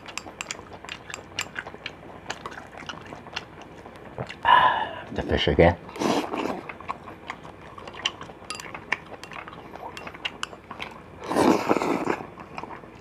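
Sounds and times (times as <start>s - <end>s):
chopsticks clinking: 0.0s - 1.7s, 7.8s - 10.6s
chewing with wet clicks: 0.0s - 4.5s, 5.9s - 13.0s
slurping hot soup: 5.9s - 6.8s, 11.2s - 12.4s.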